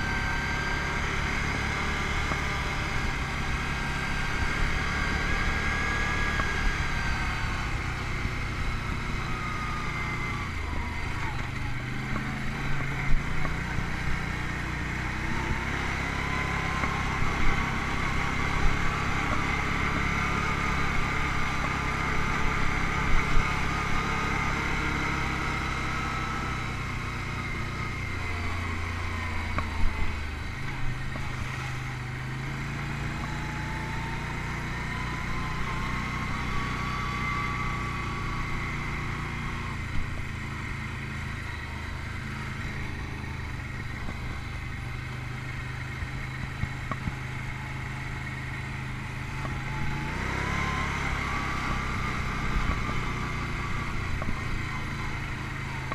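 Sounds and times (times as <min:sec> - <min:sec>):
atv engine revving: 0:00.0 - 0:55.9
sharp thumps over bumps: 0:29.5 - 0:31.6, 0:46.0 - 0:47.5, 0:51.5 - 0:54.6.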